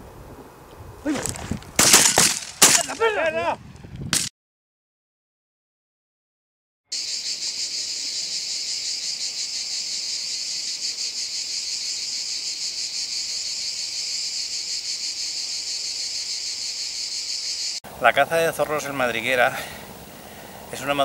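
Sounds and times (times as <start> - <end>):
high-pitched insect chirring: 6.9 - 17.8.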